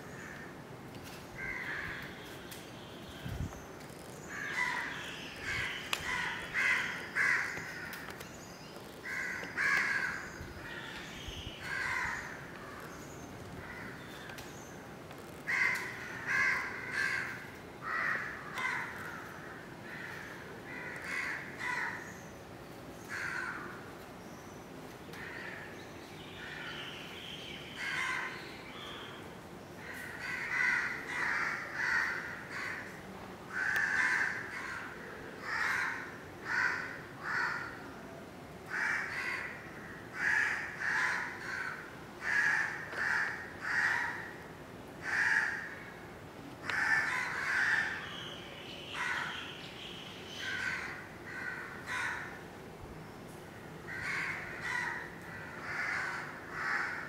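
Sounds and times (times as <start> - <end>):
crows cawing: 1.4 - 2.2, 4.3 - 8.2, 9.0 - 11.0, 11.6 - 13.0, 13.6 - 14.4, 15.3 - 22.1, 23.1 - 23.9, 25.2 - 25.7, 27.8 - 28.4, 29.8 - 37.8, 38.7 - 44.4, 45.0 - 46.0, 46.6 - 48.2, 48.9 - 49.4, 50.3 - 52.4, 53.6 - 57.0.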